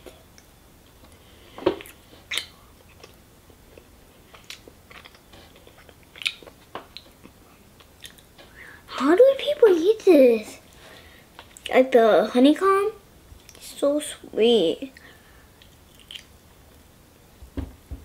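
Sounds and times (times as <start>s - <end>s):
child chewing sticky sweets: 0.0s - 8.8s, 10.7s - 11.8s, 13.4s - 13.7s, 14.9s - 16.8s.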